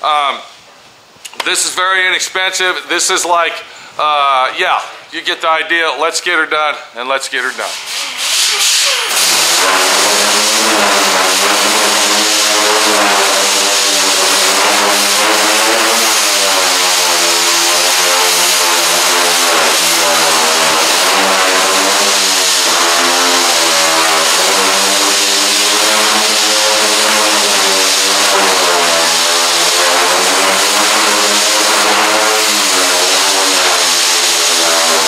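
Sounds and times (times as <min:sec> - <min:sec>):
sander whining and hissing: 0:07.7 - 0:35.0.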